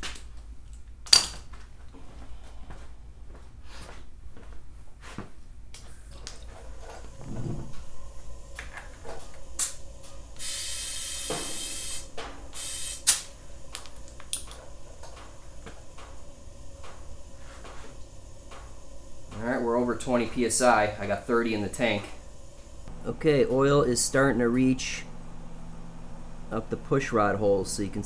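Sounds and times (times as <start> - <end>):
pressurised sprayer hissing: 6.6 - 28.0.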